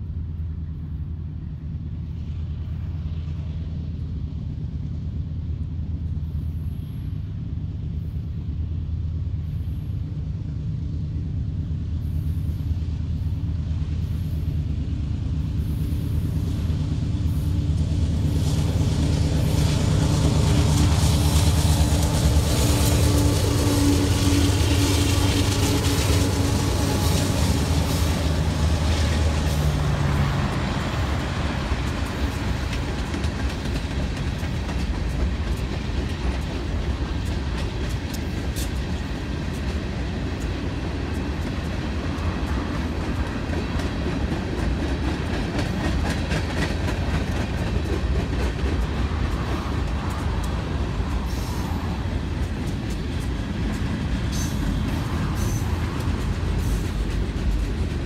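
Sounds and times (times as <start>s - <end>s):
diesel locomotive engines: 0.0s - 58.0s
freight cars rumbling over rails: 0.0s - 58.0s
wheels clicking over rail joints: 18.2s - 58.0s.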